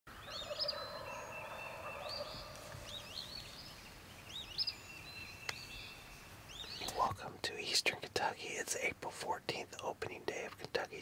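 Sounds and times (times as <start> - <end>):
songbirds singing: 0.1 - 11.0.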